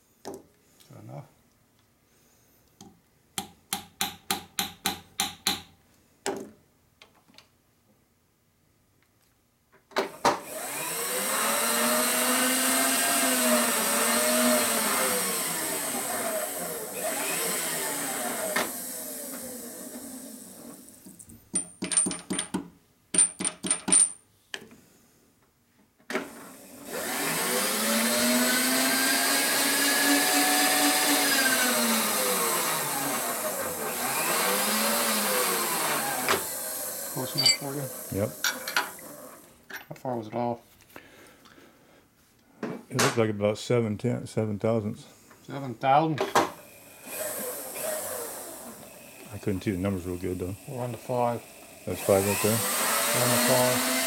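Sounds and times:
hammer tapping metal: 0:03.4 - 0:05.7
machine feed motor running: 0:10.4 - 0:21.1, 0:26.3 - 0:39.4, 0:46.6 - 0:54.0.

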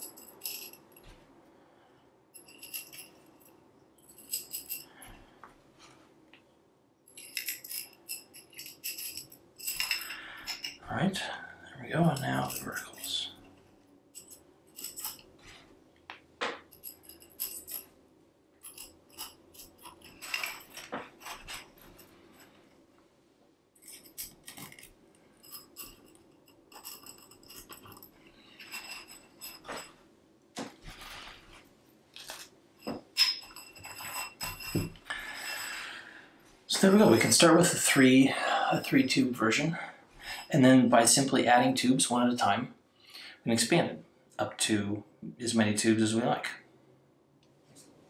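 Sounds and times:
metal tubes clinking: 0:00.0 - 0:01.2, 0:02.3 - 0:05.3, 0:07.1 - 0:15.6, 0:16.4 - 0:18.0, 0:18.6 - 0:22.6, 0:23.8 - 0:30.0, 0:32.2 - 0:36.0, 0:36.7 - 0:41.3
metal clatter: 0:14.2 - 0:15.3, 0:18.6 - 0:22.6, 0:23.8 - 0:30.0, 0:32.2 - 0:35.0.

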